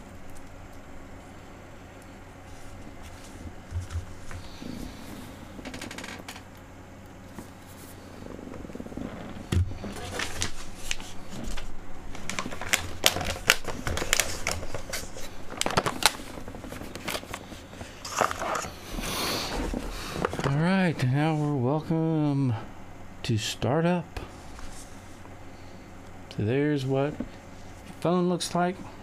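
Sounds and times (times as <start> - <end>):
cardboard packaging handled: 9.5 - 18.8.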